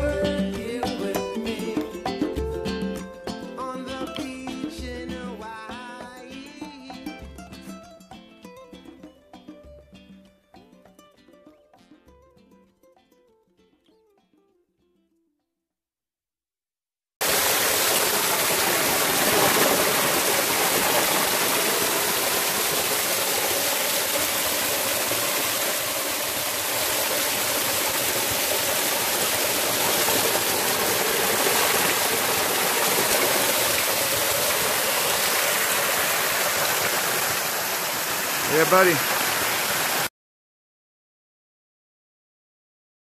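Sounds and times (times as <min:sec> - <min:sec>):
creek splashing over rocks: 0:17.2 - 0:40.1.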